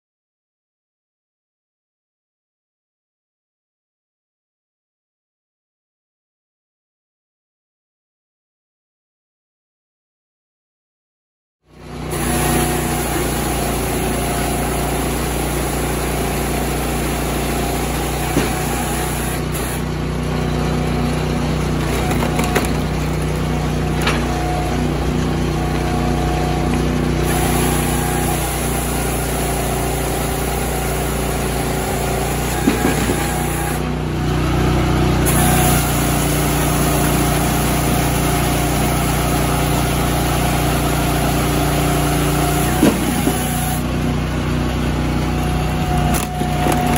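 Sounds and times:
small engine running: 11.7s - 46.9s.

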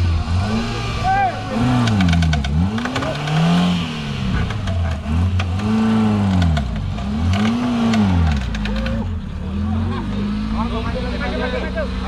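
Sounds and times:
car engine revving: 0.0s - 12.0s
scattered clatter: 1.8s - 9.1s.

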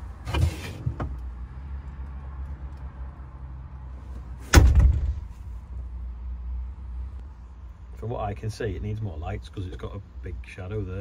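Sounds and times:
loud thump: 4.4s - 5.3s.

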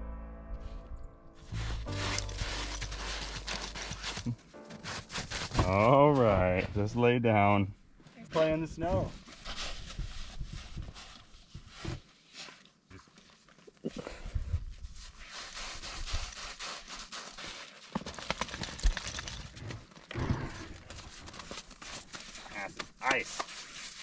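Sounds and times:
crunching in icy snow: 1.5s - 6.6s, 14.7s - 19.6s, 20.6s - 24.0s
thumps in snow: 1.5s - 6.6s.

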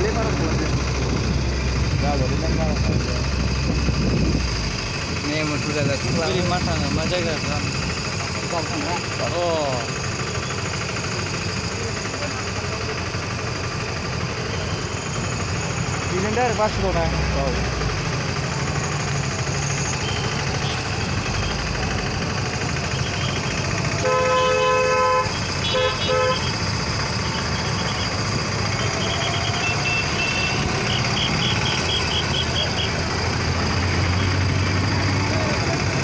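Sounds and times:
vehicle engine and road noise: 0.0s - 36.0s
vehicle horn: 24.0s - 26.6s, 28.8s - 33.0s.

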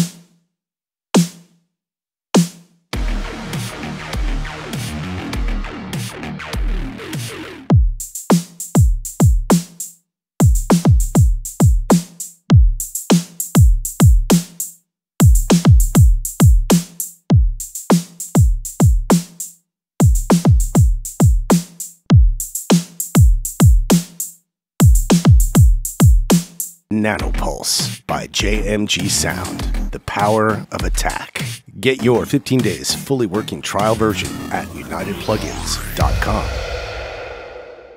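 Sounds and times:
drum kit loop: 10.4s - 14.6s, 15.2s - 19.4s, 20.0s - 24.2s, 24.8s - 32.8s, 33.8s - 36.8s.

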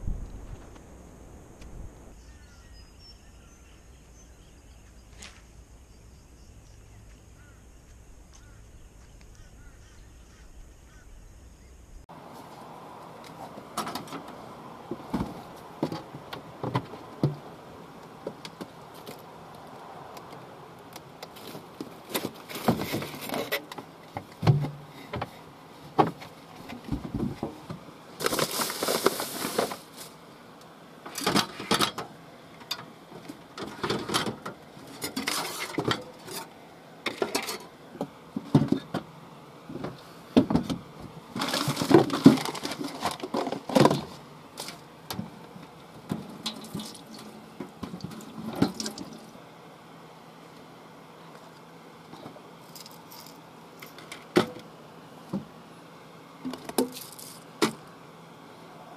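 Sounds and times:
items clattering on steel bench: 37.1s - 39.1s, 40.4s - 44.8s.

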